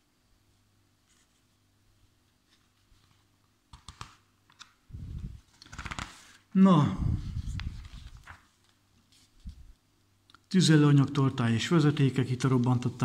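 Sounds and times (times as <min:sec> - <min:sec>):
magazine pages clicking and rustling: 0:02.5 - 0:04.8, 0:05.4 - 0:06.4, 0:07.5 - 0:09.5.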